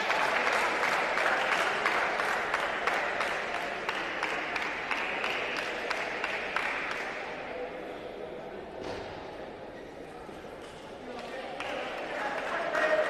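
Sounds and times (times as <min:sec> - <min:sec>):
spectators applauding: 0:00.0 - 0:07.4, 0:11.2 - 0:13.0.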